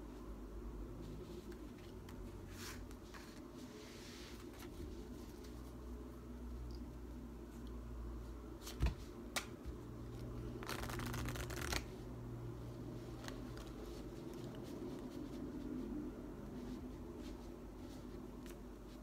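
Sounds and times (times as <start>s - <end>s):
cards riffle shuffling: 10.5s - 11.9s.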